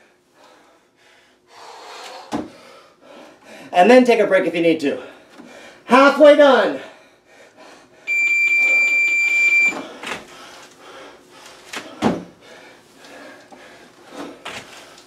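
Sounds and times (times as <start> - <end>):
electronic timer beep: 8.1 - 9.8.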